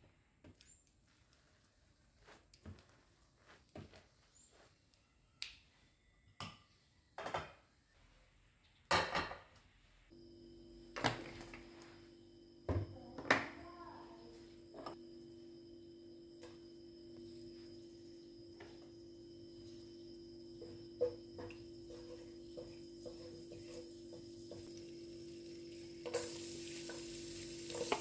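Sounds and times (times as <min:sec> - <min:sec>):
steady hum: 0:10.1 - 0:28.0.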